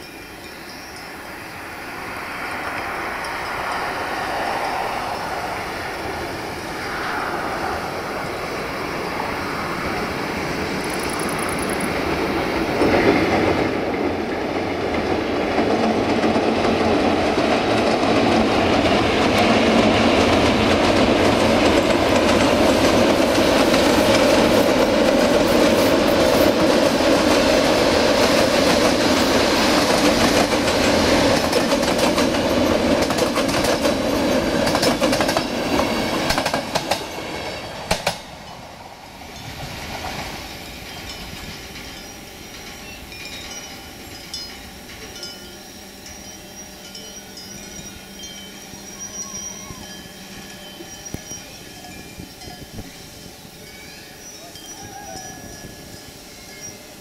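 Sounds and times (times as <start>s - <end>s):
train wheels clattering over rail joints: 10.6s - 38.6s
sharp rail clicks: 37.9s - 38.3s.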